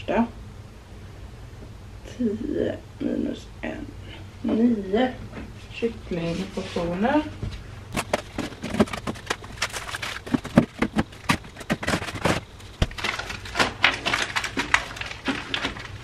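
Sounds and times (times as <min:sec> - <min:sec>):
foil trays clicking and crinkling: 0:07.9 - 0:16.0.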